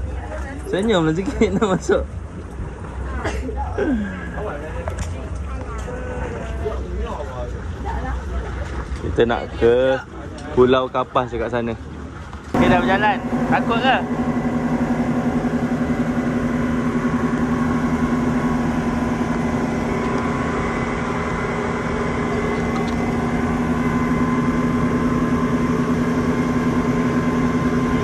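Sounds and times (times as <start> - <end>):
boat engine droning: 0.0 - 28.0.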